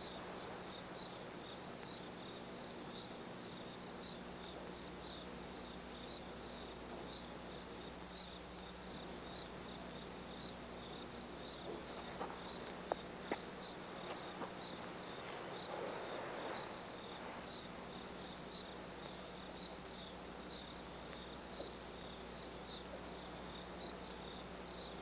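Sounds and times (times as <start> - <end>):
crickets chirping: 0.0 - 25.0
soft rustle: 11.6 - 18.6.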